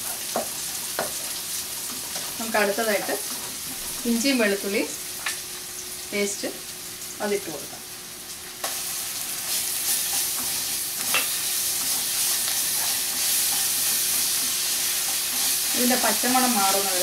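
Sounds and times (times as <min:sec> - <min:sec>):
frying sizzle in hot oil: 0:00.0 - 0:17.0
spatula scraping pan: 0:09.4 - 0:16.8.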